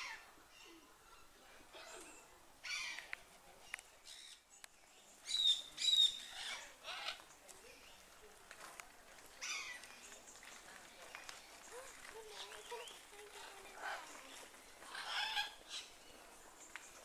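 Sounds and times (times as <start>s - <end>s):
parrots calling: 2.6s - 3.0s, 5.3s - 7.2s, 12.8s - 15.9s.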